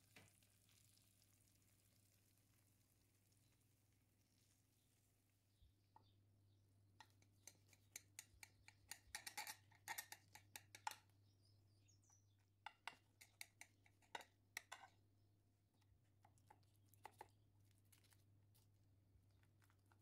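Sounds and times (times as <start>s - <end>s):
knife clicking on glass dish: 7.4s - 11.0s.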